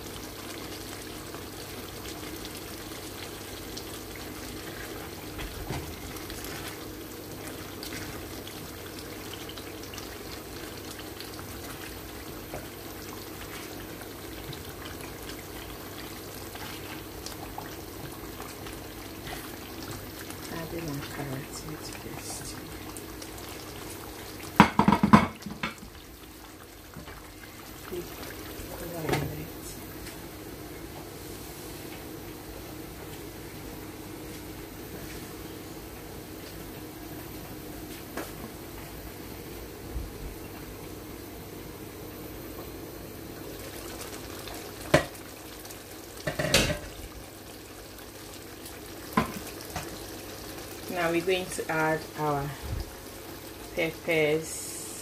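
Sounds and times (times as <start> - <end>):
stew simmering in a pan: 0.0 - 55.0
spoon knocking against pan: 24.6 - 25.8.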